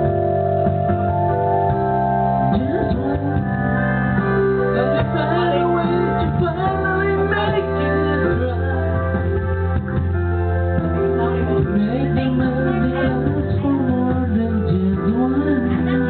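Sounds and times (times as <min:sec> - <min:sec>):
electronic organ chords: 0:00.0 - 0:16.0
man singing into microphone: 0:04.7 - 0:09.3, 0:11.6 - 0:16.0.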